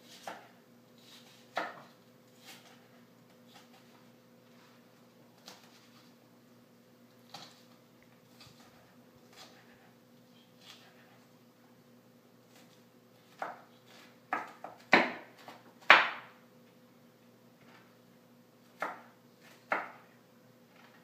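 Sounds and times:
knife chopping on wooden board: 0:00.1 - 0:00.5, 0:01.1 - 0:02.9, 0:12.5 - 0:16.3, 0:18.8 - 0:20.1.

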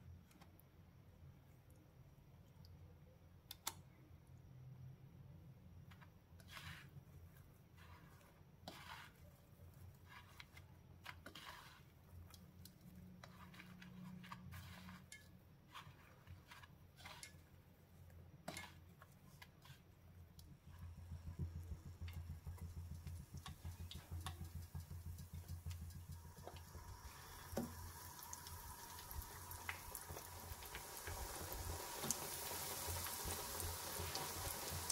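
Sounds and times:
bread frying in oil: 0:05.8 - 0:34.9
bread tapping in breadcrumbs: 0:20.3 - 0:26.7.

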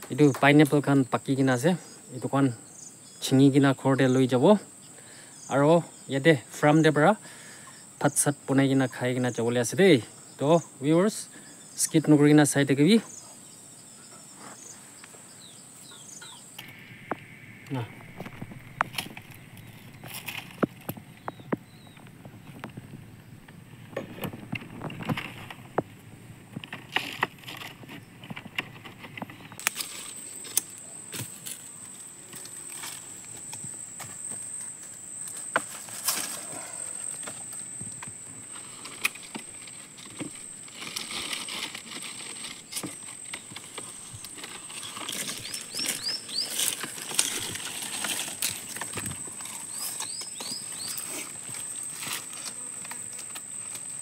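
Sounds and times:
rustling plants: 0:14.0 - 0:54.0
high-pitched whine: 0:16.6 - 0:20.4.

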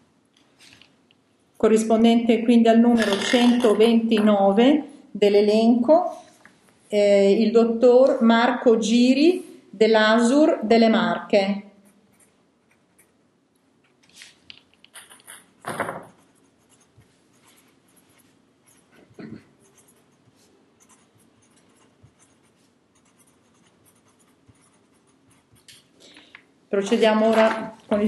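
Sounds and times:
pen scratching on paper: 0:16.1 - 0:25.7.

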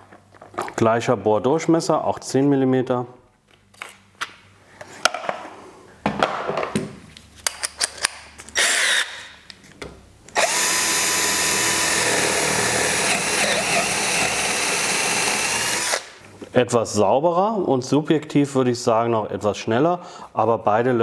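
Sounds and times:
hand drill boring into wood: 0:08.6 - 0:09.2, 0:10.4 - 0:16.2.

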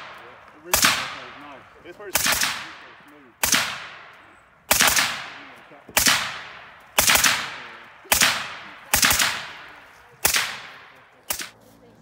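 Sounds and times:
suppressed rifle shots: 0:00.0 - 0:01.5, 0:02.1 - 0:11.6.

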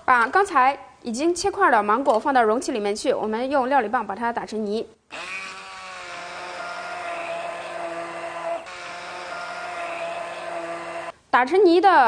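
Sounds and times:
immersion blender motor whirring: 0:05.1 - 0:11.2.

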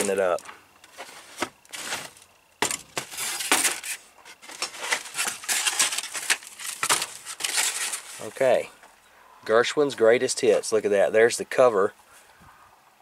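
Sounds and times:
old paper rustling: 0:00.0 - 0:08.4
hard objects clinking and clattering: 0:00.9 - 0:08.2.

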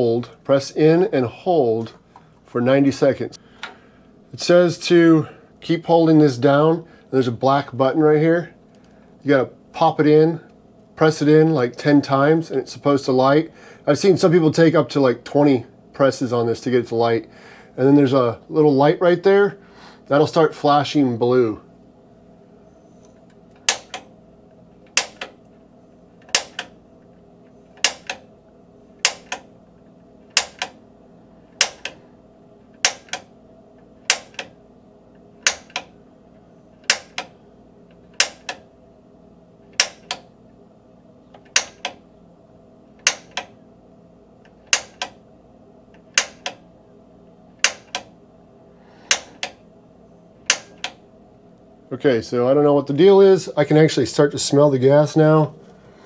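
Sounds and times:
piezo igniter snapping: 0:23.0 - 0:24.1, 0:24.8 - 0:25.5, 0:26.2 - 0:26.8, 0:27.7 - 0:28.3, 0:29.0 - 0:29.5, 0:30.3 - 0:30.8, 0:31.5 - 0:32.0, 0:32.7 - 0:34.6, 0:35.2 - 0:36.0, 0:36.8 - 0:38.7, 0:39.7 - 0:40.3, 0:41.3 - 0:42.0, 0:43.0 - 0:43.6, 0:44.4 - 0:45.2, 0:45.9 - 0:46.7, 0:47.6 - 0:48.2, 0:49.0 - 0:49.7, 0:50.4 - 0:51.0.

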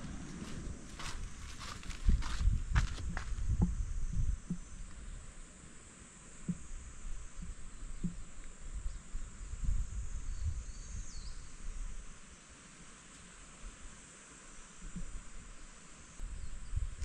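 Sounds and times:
wind rumble on microphone: 0:00.0 - 0:05.5, 0:06.4 - 0:12.3, 0:16.2 - 0:17.0
insects droning: 0:00.0 - 0:17.0.

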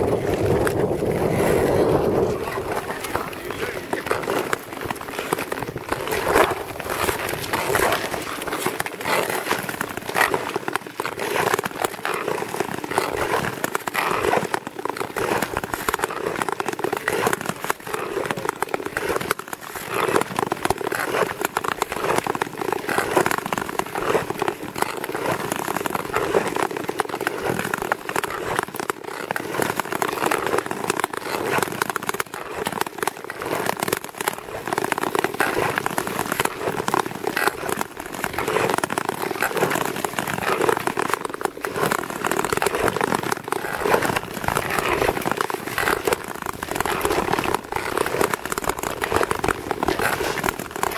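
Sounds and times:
skate blades scraping on ice: 0:00.0 - 0:50.9.

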